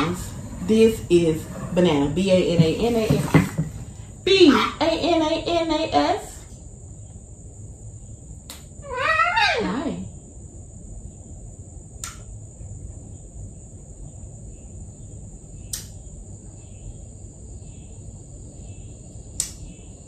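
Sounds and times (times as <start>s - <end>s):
short sharp clicks: 12.0s - 12.3s.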